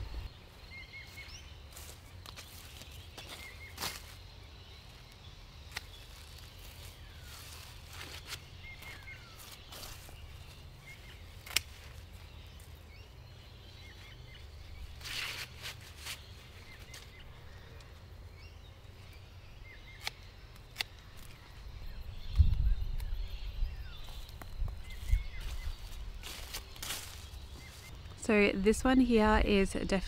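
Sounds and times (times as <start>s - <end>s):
leaves and stalks rustling: 0.0s - 18.2s, 23.9s - 30.0s
faint bird chirps: 0.0s - 30.0s
stems clicking as cut: 11.4s - 12.0s, 19.9s - 21.4s.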